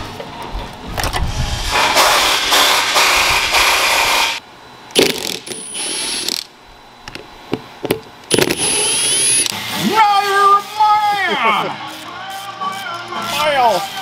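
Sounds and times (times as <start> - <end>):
loud dense mechanical noise: 0.0 - 14.0
cordless drill whining: 8.4 - 9.5.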